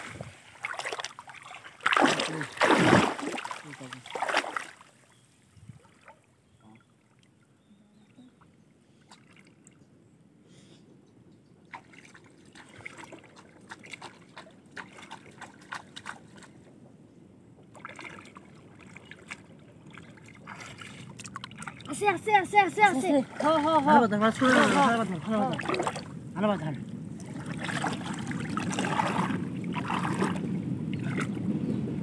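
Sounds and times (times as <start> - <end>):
fish traps plunged into water: 0.0 - 5.0
shallow river water trickling: 0.0 - 32.0
small splashes and clicks: 0.6 - 5.0, 11.7 - 16.7, 17.7 - 22.0, 24.5 - 26.1.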